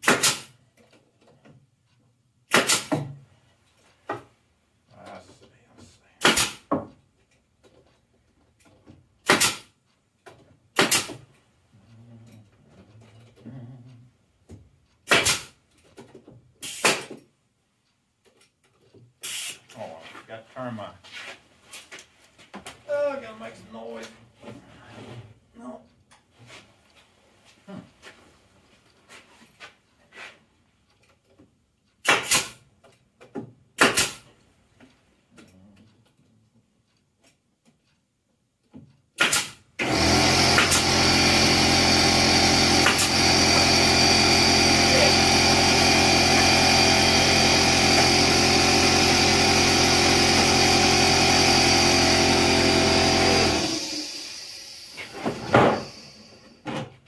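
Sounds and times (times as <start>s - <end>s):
loud sharp wooden bangs: 0.0s - 0.5s, 2.5s - 3.2s, 9.2s - 9.7s, 10.8s - 11.2s, 15.0s - 15.5s, 33.8s - 34.2s
pneumatic stapler firing into wood: 0.0s - 0.6s, 2.5s - 3.2s, 6.2s - 6.8s, 9.2s - 9.8s, 10.8s - 11.3s, 15.0s - 15.6s, 16.6s - 17.2s, 19.2s - 19.6s, 32.0s - 32.6s, 33.8s - 34.3s, 39.2s - 56.8s.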